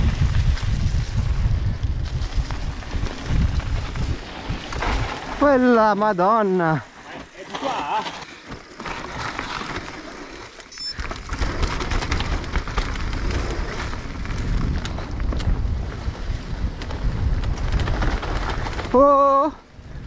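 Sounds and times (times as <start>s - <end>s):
wind rumble on microphone: 0.0s - 6.0s, 10.9s - 20.0s
tyres crackling over dry leaves: 0.0s - 15.4s
bike rattling: 0.0s - 20.0s.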